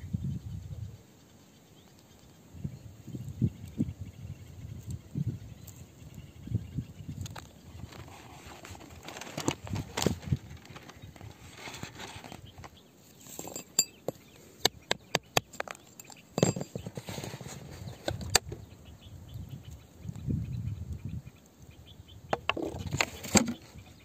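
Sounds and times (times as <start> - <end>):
metal tool scraping gritty soil: 7.2 - 18.4, 22.4 - 23.8
sharp taps and clicks: 13.8 - 16.5.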